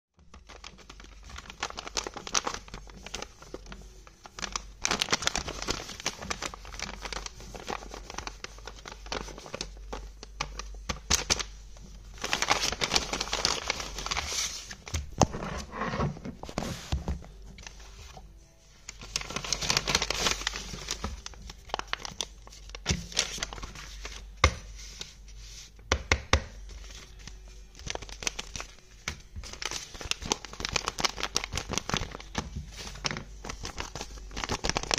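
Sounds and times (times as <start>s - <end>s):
paper rustling and crinkling: 0.2s - 25.8s, 26.6s - 34.9s
fingers tapping on paper: 9.2s - 11.5s, 24.4s - 24.7s, 25.9s - 26.6s.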